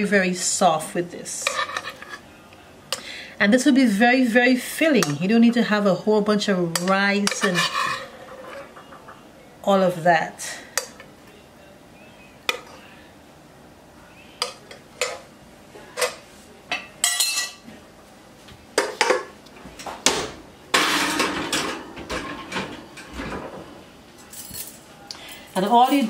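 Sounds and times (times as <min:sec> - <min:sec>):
kitchenware clattering: 0:06.6 - 0:09.2, 0:14.4 - 0:15.3, 0:15.9 - 0:17.6, 0:18.8 - 0:24.9.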